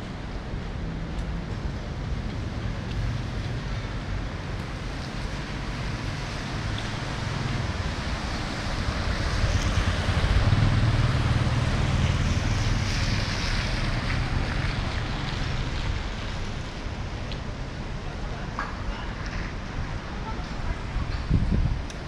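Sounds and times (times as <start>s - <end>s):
car tyres hissing on wet road: 4.8s - 17.2s
wind buffeting microphone: 20.7s - 22.0s.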